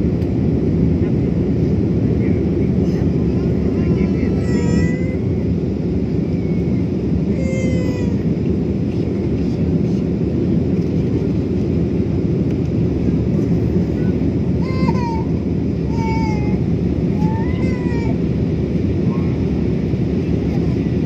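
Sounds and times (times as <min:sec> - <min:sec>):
jet engine cabin rumble: 0:00.0 - 0:21.0.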